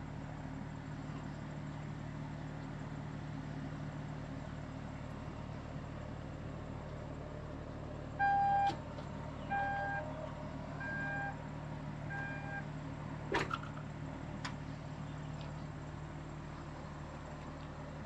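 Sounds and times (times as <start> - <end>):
warning beeps: 8.2 - 8.7, 9.5 - 10.1, 10.8 - 11.4, 12.1 - 12.6.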